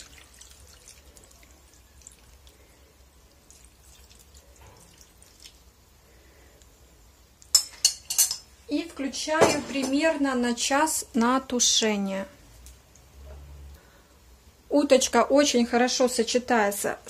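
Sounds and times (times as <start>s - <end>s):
liquid trickling and dripping: 0.0s - 5.8s.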